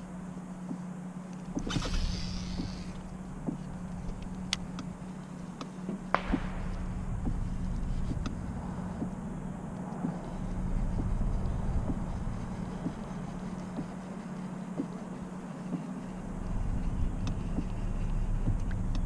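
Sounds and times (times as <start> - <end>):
electric motor humming: 0.0 - 19.0
fishing rod and reel clicks: 1.3 - 3.0.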